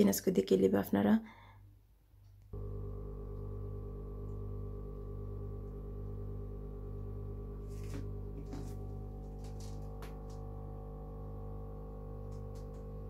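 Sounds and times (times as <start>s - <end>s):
droning hum of held tones: 2.6s - 13.0s.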